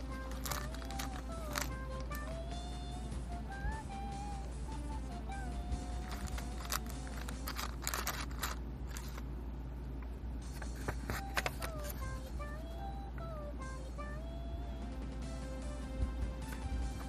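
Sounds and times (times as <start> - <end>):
thin background tune: 0.0 - 9.2, 10.2 - 17.0
paper rustling: 0.3 - 1.7, 6.0 - 9.2, 10.5 - 12.1
plastic clicks: 6.1 - 9.2.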